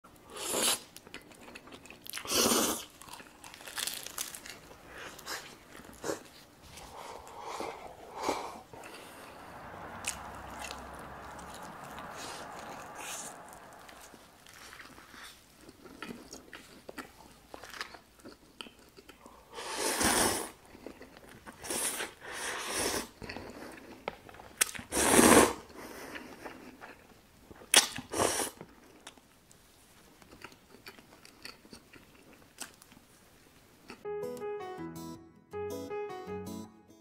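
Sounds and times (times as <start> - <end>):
slurping noodles: 0.3 - 0.9, 2.2 - 2.9, 19.6 - 20.6, 21.6 - 23.8, 24.8 - 26.5
chewing and biting: 0.6 - 7.5, 30.0 - 33.0.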